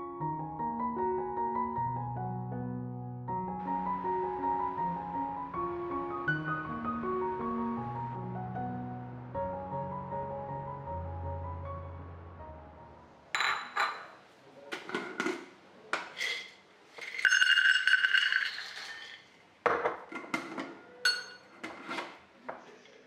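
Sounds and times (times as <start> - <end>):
clinks and knocks of jar and bowl: 13.4 - 14.2, 16.0 - 21.6
cashews rattling into metal cup: 16.2 - 19.3.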